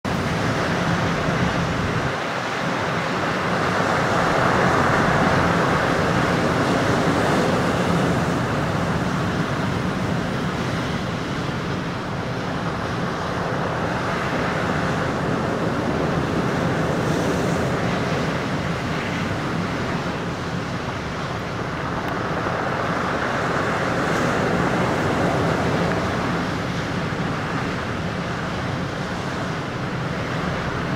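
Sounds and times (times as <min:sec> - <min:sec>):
waves crashing on rocks: 0:00.1 - 0:30.9.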